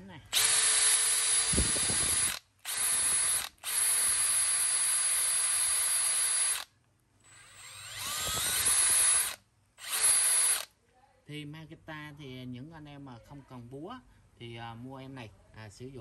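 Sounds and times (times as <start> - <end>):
cordless drill whining: 0.3 - 10.7.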